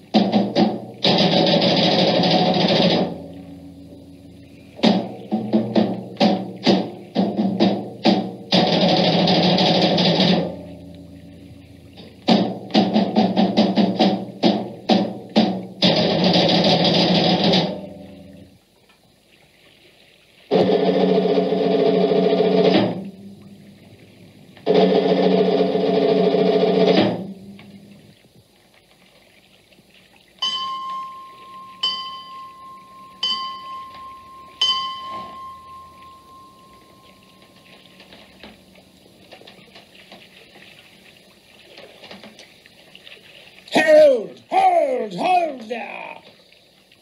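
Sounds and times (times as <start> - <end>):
bell ringing: 30.4 - 38.2.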